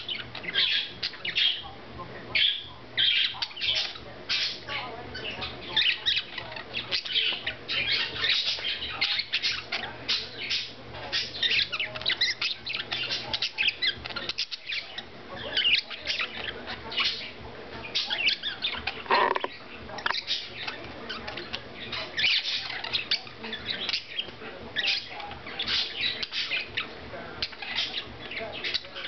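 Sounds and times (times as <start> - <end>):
budgerigars warbling and chattering: 0.0 - 29.0
bird squawk: 18.0 - 20.5.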